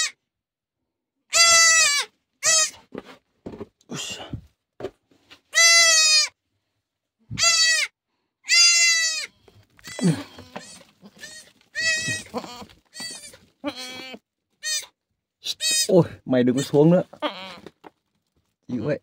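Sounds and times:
goat kid bleating: 1.3 - 2.8, 5.5 - 6.4, 7.3 - 15.9, 16.6 - 17.8.

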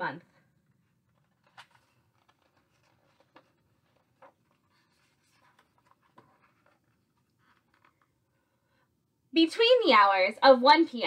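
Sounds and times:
book pages turning: 0.6 - 8.2.

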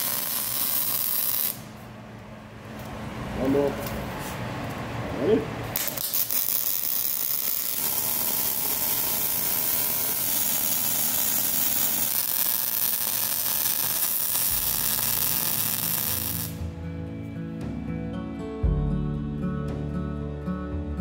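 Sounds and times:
welding arc hissing: 0.0 - 1.7, 5.8 - 16.6.

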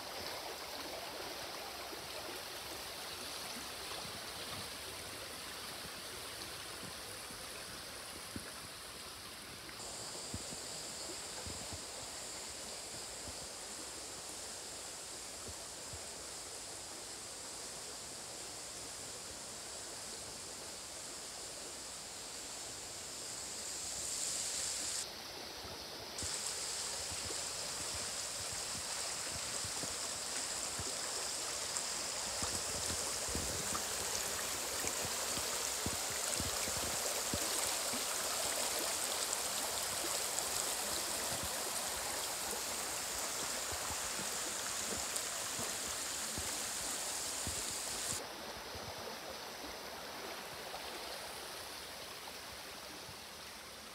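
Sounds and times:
stream gurgling over stones: 0.0 - 13.1, 24.5 - 53.9.

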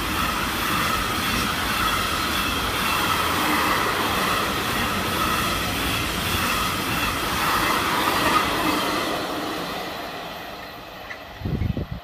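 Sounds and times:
freight train rolling past: 0.0 - 12.0.

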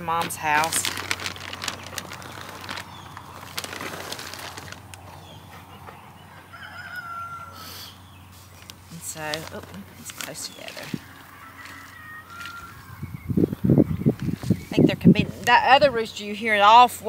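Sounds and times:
rooster crowing faintly: 6.3 - 8.0, 11.0 - 13.0.

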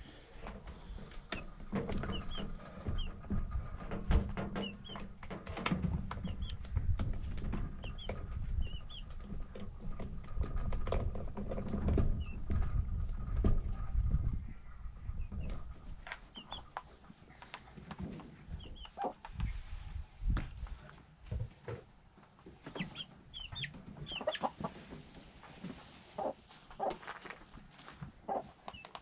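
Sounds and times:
knocks and rustling: 0.4 - 14.6, 15.2 - 29.0
chick peeping: 1.2 - 3.3, 4.5 - 5.1, 6.1 - 9.6, 12.1 - 17.6, 18.4 - 19.6, 22.6 - 24.9, 26.1 - 27.0, 28.3 - 29.0.

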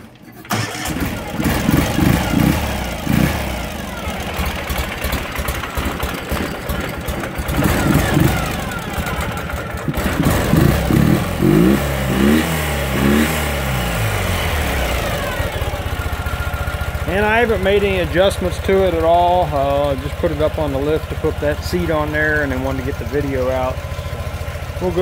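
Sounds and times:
motorcycle engine idling and revving: 0.0 - 25.0.

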